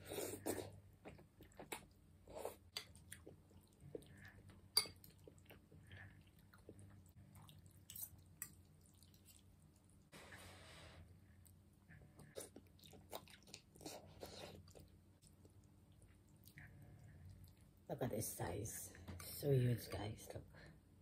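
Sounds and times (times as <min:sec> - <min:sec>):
chewing noodles: 0:00.0 - 0:10.1, 0:11.4 - 0:17.8.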